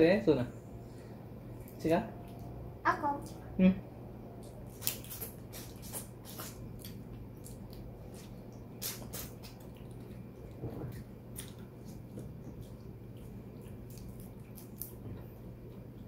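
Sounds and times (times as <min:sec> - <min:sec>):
faint low hum: 0:00.0 - 0:16.0
wet eating smacks and squishes: 0:04.4 - 0:15.3.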